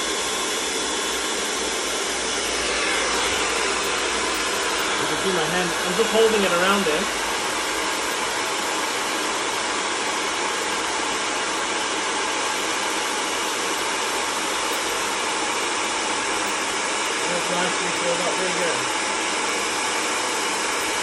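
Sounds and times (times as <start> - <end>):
hair dryer blowing: 0.0 - 21.0.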